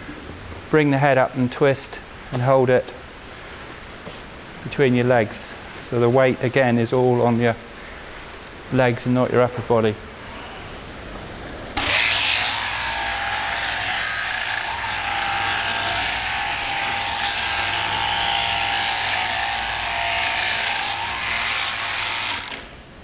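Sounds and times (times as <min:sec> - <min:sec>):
electric shears buzzing: 0:11.8 - 0:22.8.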